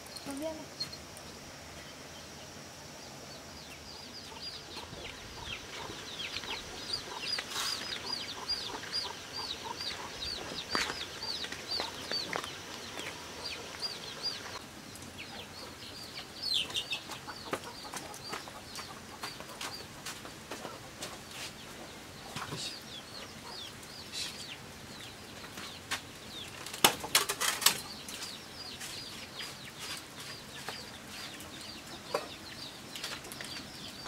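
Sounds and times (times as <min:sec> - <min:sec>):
chicken cheeping: 0:03.3 - 0:14.6, 0:15.2 - 0:19.9, 0:20.6 - 0:26.6.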